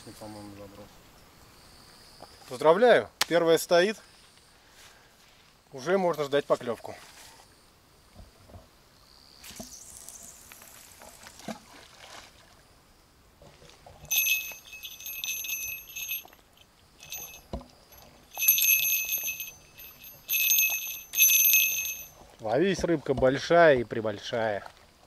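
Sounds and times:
fishing bell jingling: 0:14.1 - 0:22.3.

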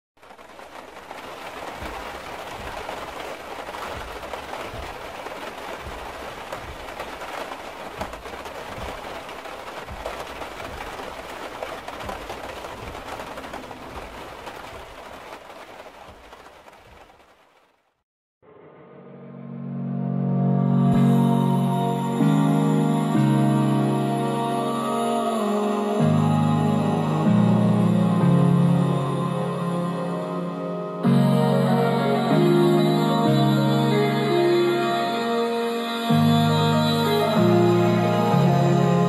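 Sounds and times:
heavy rain on car roof: 0:00.2 - 0:18.0.

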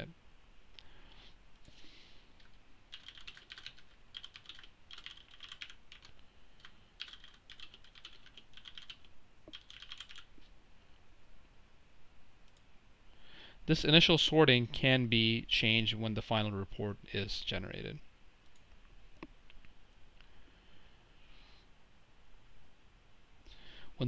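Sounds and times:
computer keyboard typing: 0:02.4 - 0:10.3.

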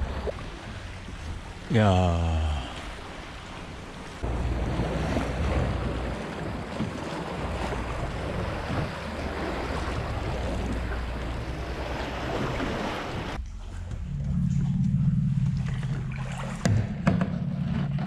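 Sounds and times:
sea water sloshing: 0:00.0 - 0:13.7, 0:14.6 - 0:18.0
kayak paddle strokes in water: 0:02.8 - 0:13.4
wind rumbling on microphone: 0:03.3 - 0:18.0.

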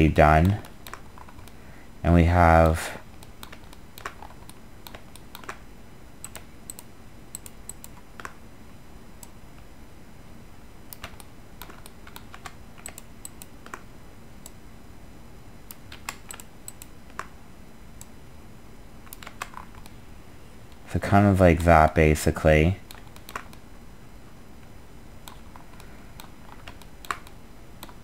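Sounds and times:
faint steady hum: 0:00.0 - 0:28.0
keyboard and mouse clicks: 0:00.4 - 0:01.6, 0:03.2 - 0:05.6, 0:06.2 - 0:08.4, 0:10.9 - 0:14.6, 0:15.7 - 0:17.3, 0:19.0 - 0:20.0, 0:22.9 - 0:23.6, 0:25.2 - 0:28.0.

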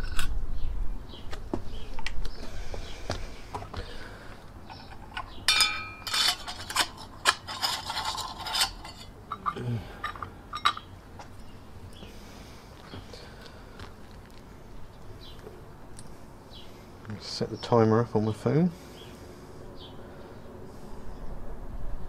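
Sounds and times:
metallic clinks of burners on stands: 0:04.7 - 0:07.4, 0:08.5 - 0:10.9
metal scraping on metal: 0:04.7 - 0:10.9.

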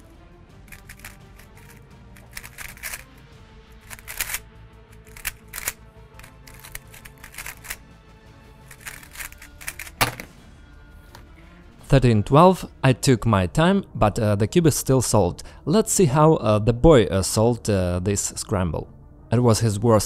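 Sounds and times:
quiet background music: 0:00.0 - 0:20.0
puzzle cube clicking: 0:00.7 - 0:03.1, 0:03.8 - 0:04.4, 0:05.0 - 0:07.8, 0:08.6 - 0:10.3
cube knock: 0:09.9 - 0:10.4.

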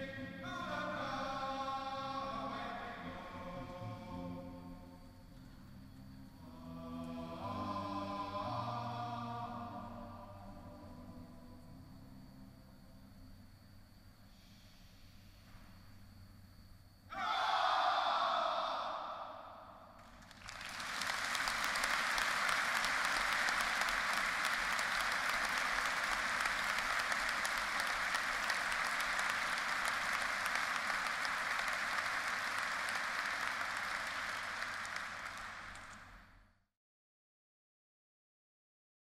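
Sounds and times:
massed shout: 0:17.1 - 0:19.9
audience applauding: 0:20.0 - 0:36.3.

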